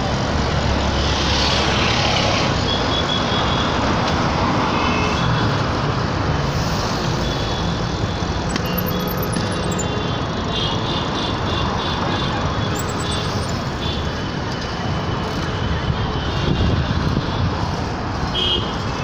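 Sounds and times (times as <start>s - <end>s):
road traffic rumble: 0.0s - 19.0s
faint high beeps: 8.5s - 10.2s, 12.7s - 13.6s.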